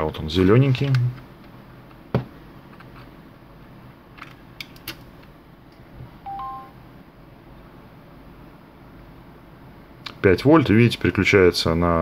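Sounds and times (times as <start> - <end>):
two-note electronic beep: 6.3 - 6.8.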